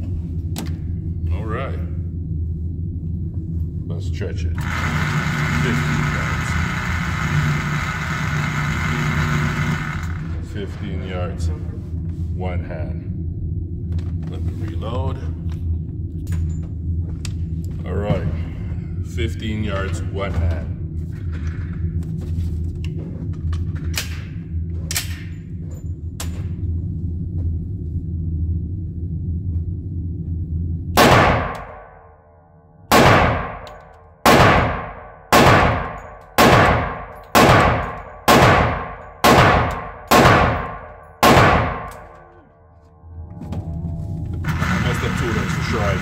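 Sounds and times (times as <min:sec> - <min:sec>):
steady low hum: 0:00.0 - 0:46.0
pistol shots with ringing tail: 0:31.0 - 0:32.0, 0:32.9 - 0:42.2.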